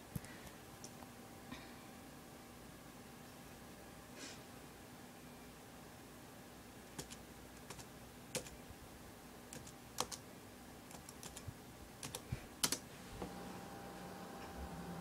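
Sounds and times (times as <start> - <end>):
laptop keyboard typing: 7.0 - 8.6, 9.5 - 10.2, 10.9 - 12.8.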